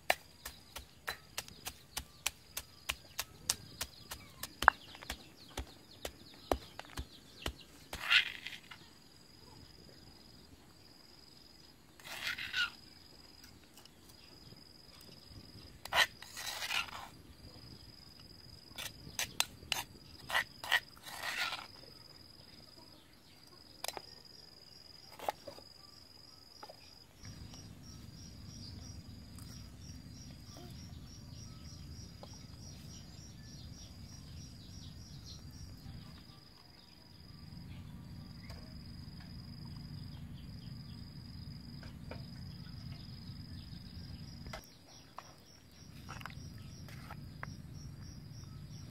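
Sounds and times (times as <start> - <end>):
insects chirping: 0.0 - 48.9
metal spoon scraping stone mortar: 12.0 - 12.7, 15.8 - 17.1, 18.8 - 21.7.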